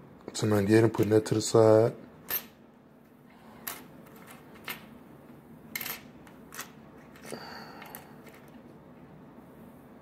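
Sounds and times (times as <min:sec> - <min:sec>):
pennies clicking on wooden table: 0:03.6 - 0:04.9, 0:05.7 - 0:08.6.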